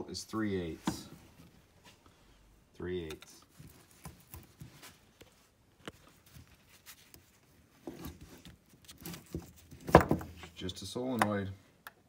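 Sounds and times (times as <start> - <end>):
rustling: 3.3 - 10.6.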